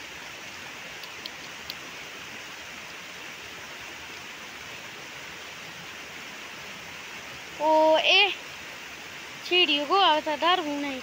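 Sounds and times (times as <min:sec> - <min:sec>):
outdoor rushing hiss: 0:00.0 - 0:11.0
faint ticks: 0:00.9 - 0:01.9.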